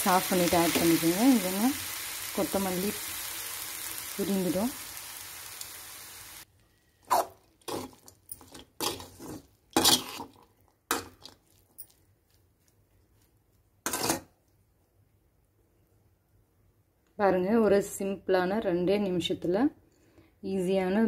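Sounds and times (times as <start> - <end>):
food frying hiss: 0.0 - 6.5
metal spoon scraping a pan: 7.6 - 11.4, 13.9 - 14.3.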